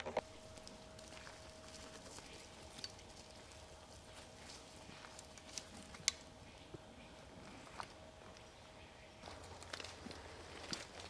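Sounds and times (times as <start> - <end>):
faint steady hum: 0.0 - 11.0
twigs snapping underfoot: 4.4 - 6.3, 9.2 - 11.0.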